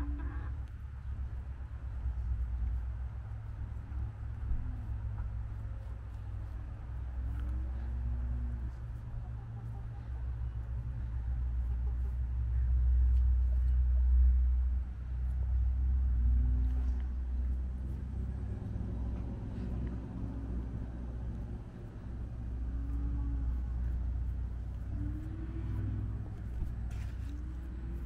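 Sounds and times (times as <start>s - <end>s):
low uneven rumble: 0.0s - 28.0s.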